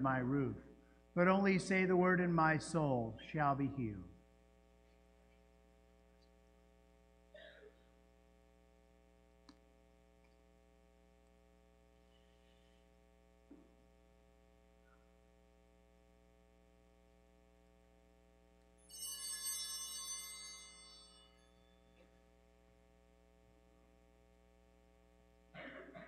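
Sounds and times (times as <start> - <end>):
electrical hum: 0.0 - 18.9.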